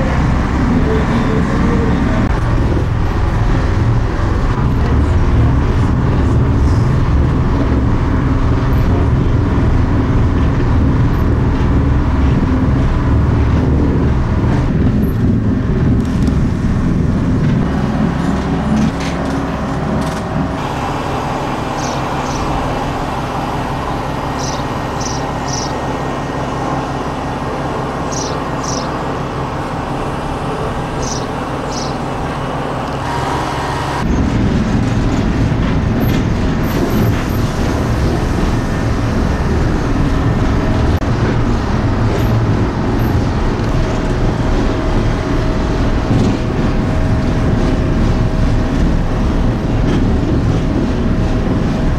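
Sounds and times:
rail noise: 0:00.0 - 0:51.9
railcar engine drone: 0:00.0 - 0:51.9.

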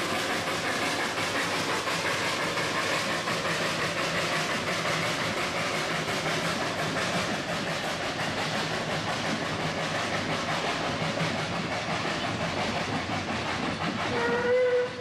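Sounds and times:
steam train hissing and rattling: 0:00.0 - 0:15.0
steam train whistle: 0:14.1 - 0:15.0.

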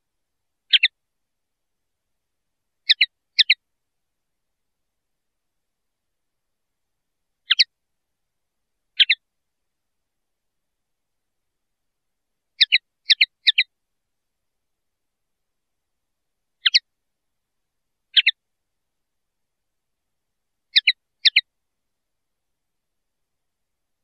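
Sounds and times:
bird high double chirps: 0:00.7 - 0:00.9, 0:07.5 - 0:07.7, 0:12.6 - 0:13.7, 0:18.2 - 0:18.4, 0:20.8 - 0:21.4.

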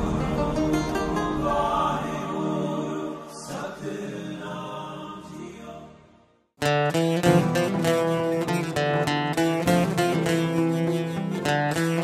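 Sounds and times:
background music with held tones: 0:06.6 - 0:12.0.

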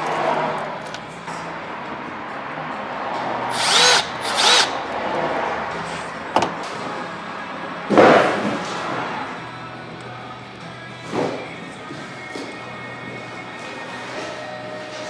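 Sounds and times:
cordless drill driving screw: 0:03.5 - 0:04.8.

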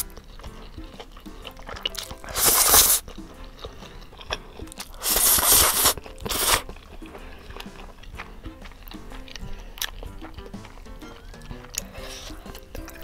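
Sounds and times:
soft background music: 0:00.0 - 0:13.0
person slurping noodles: 0:01.4 - 0:03.2, 0:04.6 - 0:08.0.

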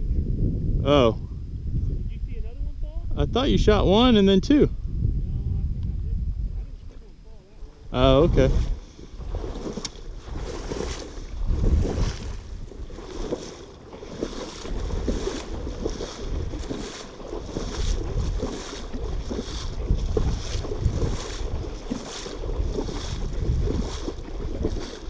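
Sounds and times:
wind rumbling on microphone: 0:00.0 - 0:25.0
footsteps sloshing through water: 0:08.0 - 0:25.0.

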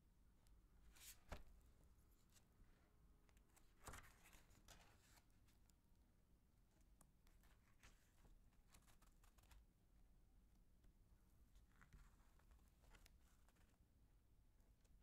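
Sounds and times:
page turning: 0:00.9 - 0:01.5, 0:03.6 - 0:05.2, 0:07.4 - 0:09.6, 0:11.8 - 0:13.7
paper rustles: 0:03.6 - 0:05.2, 0:07.4 - 0:09.6, 0:11.6 - 0:13.8.

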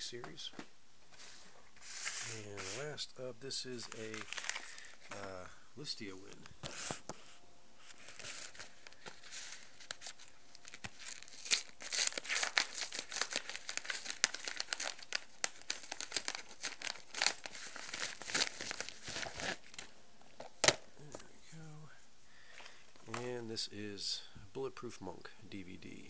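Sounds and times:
package packaging tearing: 0:03.8 - 0:04.9, 0:08.0 - 0:19.9.

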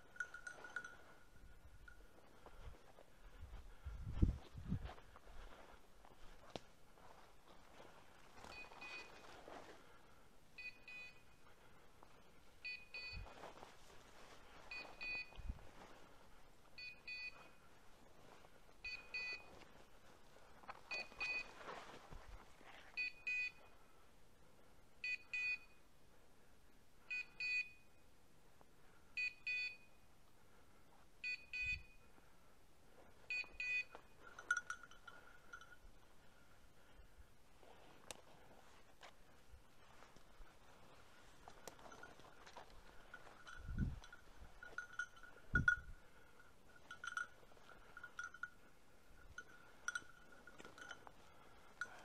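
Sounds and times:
beeper collar beeping: 0:00.0 - 0:02.0, 0:08.5 - 0:09.4, 0:10.6 - 0:11.6, 0:12.6 - 0:13.4, 0:14.7 - 0:15.6, 0:16.8 - 0:17.7, 0:18.8 - 0:19.6, 0:20.9 - 0:21.6, 0:23.0 - 0:23.8, 0:31.2 - 0:32.1, 0:33.3 - 0:35.8, 0:41.5 - 0:52.0
rustling of brush: 0:00.2 - 0:10.2, 0:11.6 - 0:23.0, 0:33.9 - 0:52.0.

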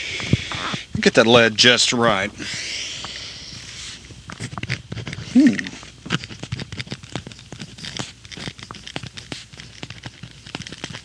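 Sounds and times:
pencil scratching on paper: 0:03.7 - 0:11.0.

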